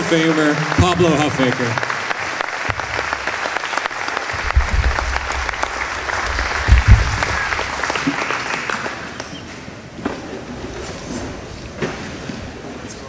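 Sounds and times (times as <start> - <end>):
audience applauding: 0.0 - 9.4
low thump: 4.4 - 8.0.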